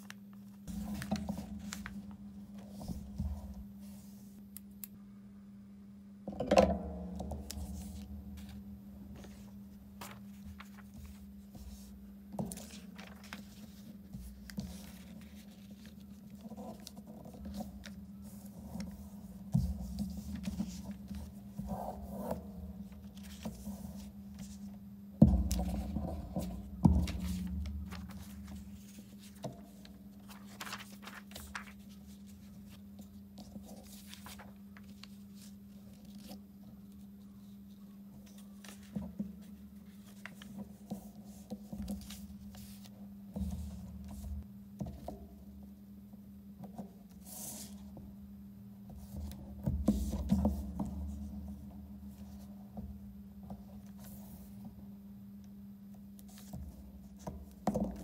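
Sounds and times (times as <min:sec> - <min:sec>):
paper rustling and creasing: 0:00.0 - 0:04.4, 0:07.3 - 0:24.7, 0:25.3 - 0:44.3
paper pressed down thumps: 0:00.7 - 0:03.7, 0:10.0 - 0:16.0, 0:25.2 - 0:31.8
low hum: 0:12.2 - 0:13.4.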